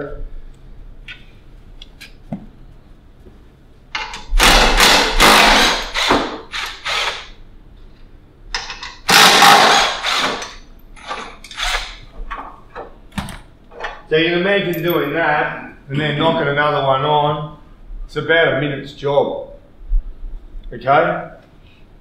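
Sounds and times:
impact wrench hammering: 4.0s - 7.3s, 8.6s - 12.1s.

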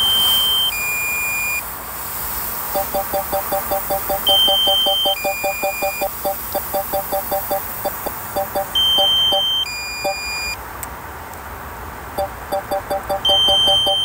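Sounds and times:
high-pitched two-note tone: 2.8s - 10.2s, 12.2s - 14.0s
rapid short beeps: 2.8s - 10.6s, 12.2s - 14.0s.

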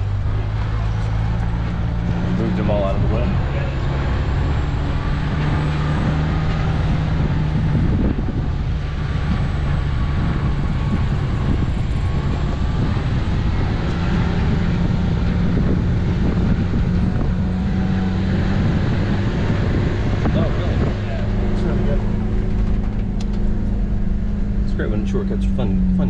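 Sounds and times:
car engine under load: 0.0s - 26.0s
road rumble: 0.0s - 26.0s.

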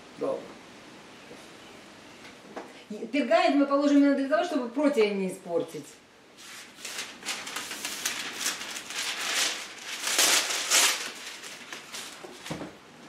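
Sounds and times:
parchment paper rustling: 6.4s - 12.8s.

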